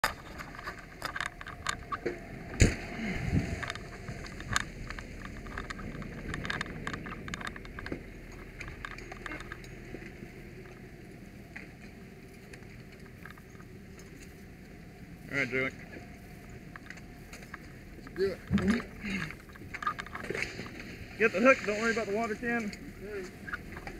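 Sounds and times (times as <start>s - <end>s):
gear and equipment rattling: 0.0s - 2.0s, 3.4s - 10.8s, 16.3s - 23.9s.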